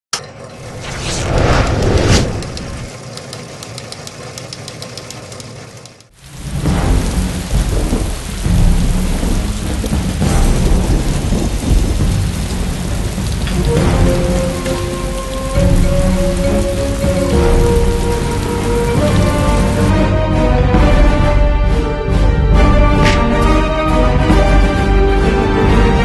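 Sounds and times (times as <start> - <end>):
low rumbling drones: 0.5 - 3.2, 6.2 - 25.2
rapid even ticking: 2.3 - 6.1.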